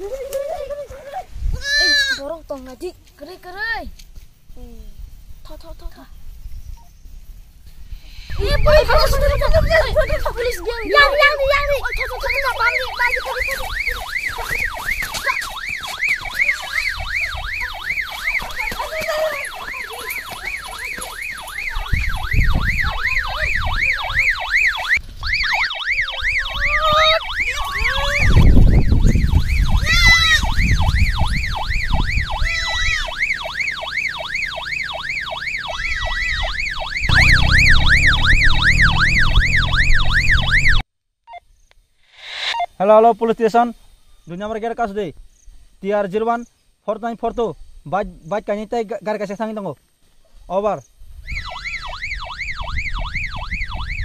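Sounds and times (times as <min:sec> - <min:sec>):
siren yelping: 0:10.9 - 0:40.8, 0:51.2 - 0:54.0
low rumble: 0:37.0 - 0:40.8.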